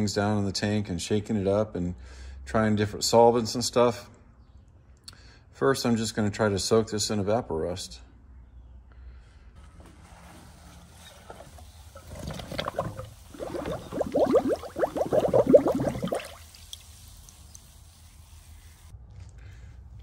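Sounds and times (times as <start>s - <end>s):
water gurgling and glugging: 11.9s - 16.5s.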